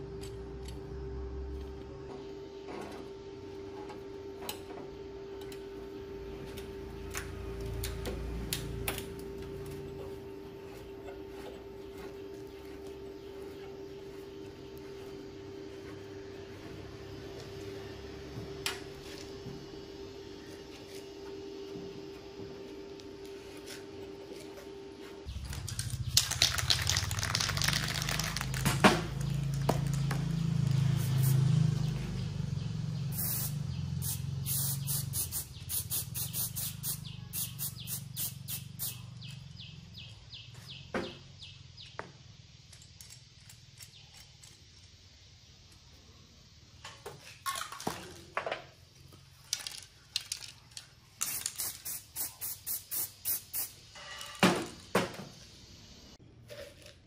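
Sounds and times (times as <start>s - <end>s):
low hum: 0.0s - 35.8s
spray can rattling: 25.4s - 31.4s, 33.2s - 39.0s, 49.5s - 53.8s.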